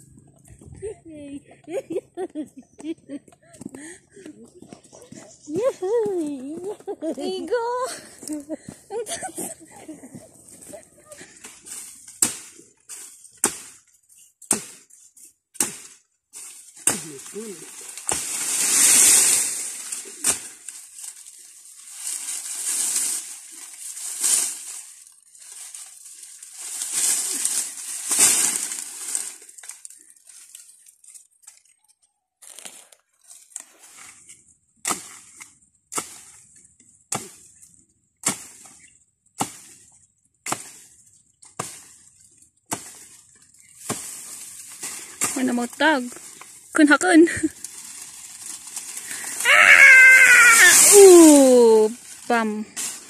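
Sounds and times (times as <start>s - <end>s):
machete chopping plant: 12.1s - 12.6s, 13.4s - 13.8s, 14.4s - 14.9s, 15.6s - 16.0s, 16.8s - 20.8s, 34.8s - 36.4s, 37.1s - 37.5s, 38.2s - 38.7s, 39.4s - 39.8s, 40.4s - 40.9s, 42.7s - 43.1s
leaves rustling and crunching: 15.6s - 31.7s, 38.4s - 53.0s.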